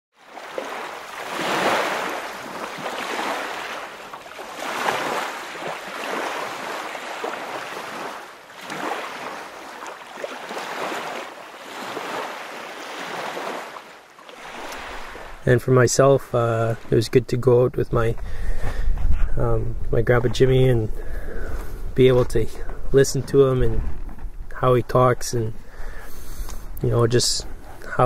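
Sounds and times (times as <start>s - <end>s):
water waves washing in: 0.1s - 17.2s.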